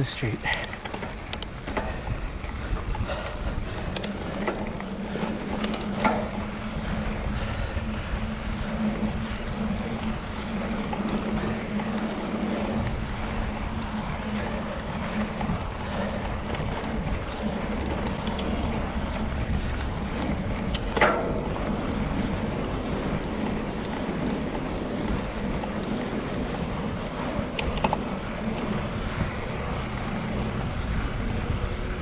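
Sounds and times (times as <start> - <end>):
bike tyres on dirt: 0.0 - 32.0
wind on microphone: 1.4 - 4.1, 24.6 - 32.0
bike knocking over bumps: 8.7 - 24.4.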